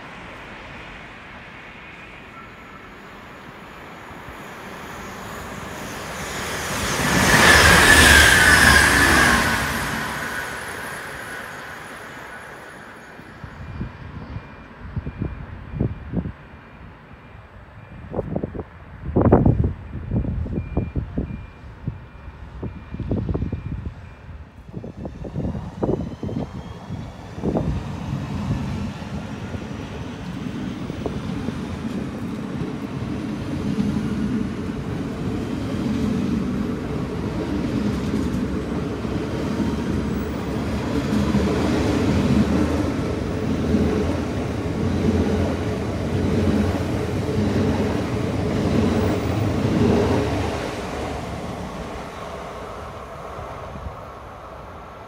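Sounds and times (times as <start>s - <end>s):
electric train passing: 0.0s - 55.0s.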